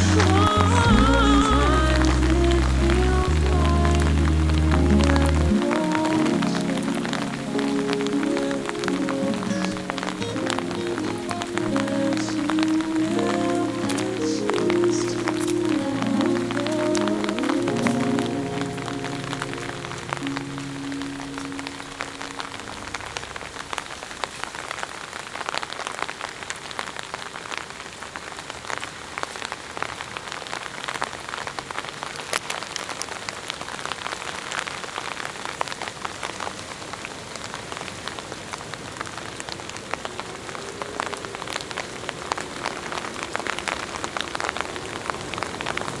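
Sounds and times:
music track: 0.0s - 24.2s
rain falling: 0.0s - 46.0s.

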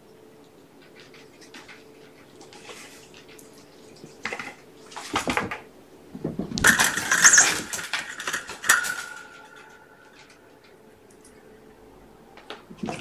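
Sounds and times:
rattling clattering knocks of toys: 5.1s - 9.5s.

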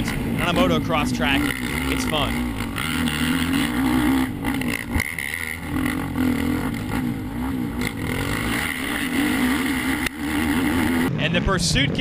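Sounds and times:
atv engines revving: 0.0s - 12.0s.

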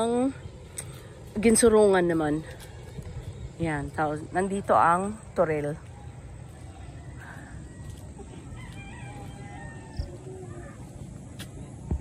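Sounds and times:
low outdoor rumble: 0.0s - 12.0s
distant rooster crowing: 7.0s - 10.9s.

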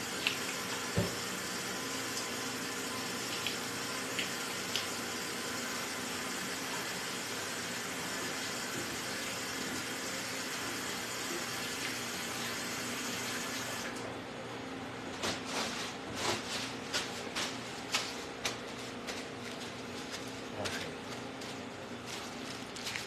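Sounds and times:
paper towels rustling and tearing: 15.2s - 23.0s.

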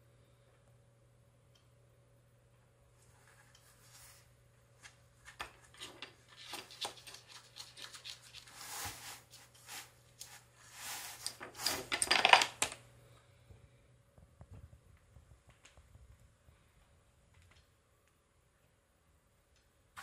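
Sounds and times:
cat rubbing on cardboard scratcher: 7.7s - 11.8s.

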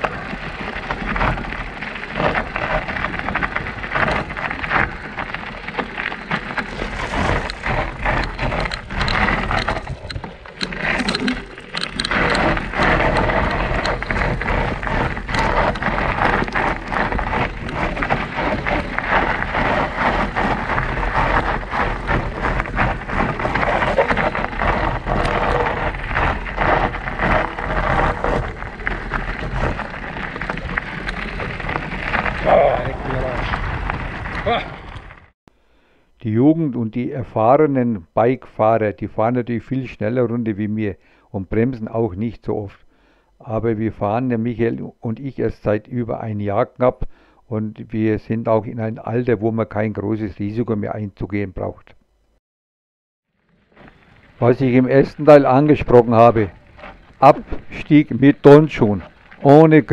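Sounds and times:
bike tyres crunching on gravel: 0.0s - 35.4s, 53.3s - 59.9s.

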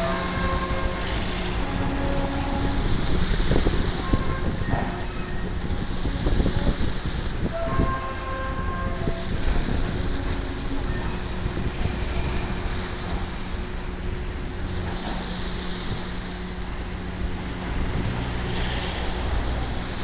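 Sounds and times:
wind buffeting microphone: 0.0s - 14.8s
low engine hum: 0.0s - 20.0s.

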